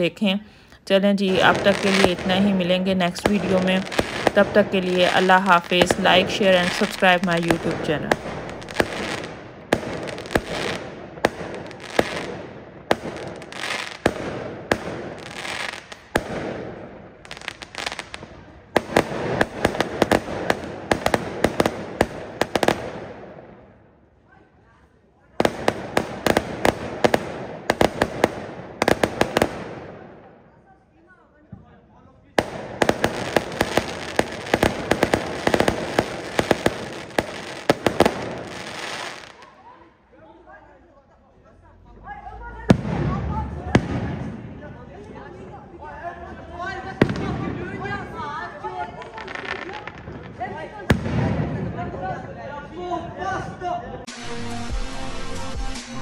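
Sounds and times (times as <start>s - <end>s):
fireworks crackling and hissing: 0.0s - 23.5s, 25.0s - 30.4s, 32.4s - 39.8s, 46.8s - 51.5s
fireworks bangs: 1.0s - 23.9s, 25.4s - 30.5s, 31.5s - 39.8s, 42.6s - 45.5s, 46.5s - 52.1s.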